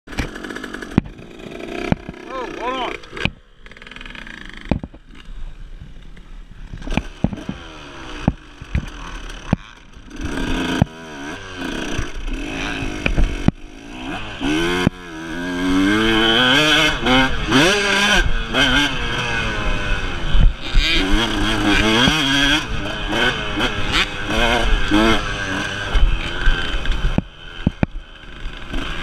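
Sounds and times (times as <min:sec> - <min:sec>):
dirt bike engine revving: 0:00.1 - 0:29.0
knocks and clatter: 0:04.5 - 0:05.2.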